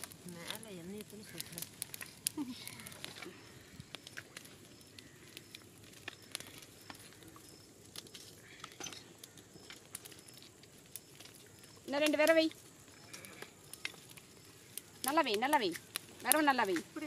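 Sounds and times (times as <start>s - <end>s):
wood fire crackling: 0.0s - 17.0s.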